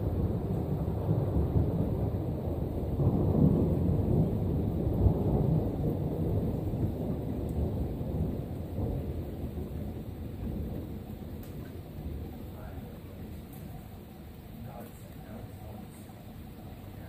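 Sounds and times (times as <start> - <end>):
rolling thunder: 0.0 - 17.0.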